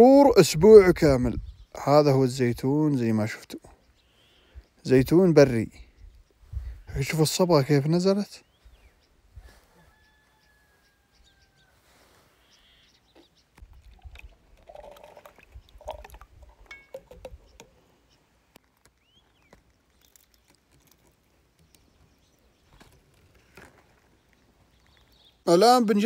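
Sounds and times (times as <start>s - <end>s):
olives and brine splashing: 13.6s - 17.6s.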